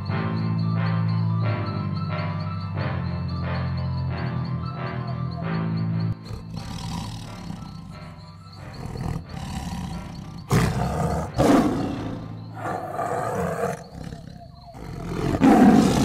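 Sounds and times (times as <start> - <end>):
big cat roaring: 6.2 - 16.0.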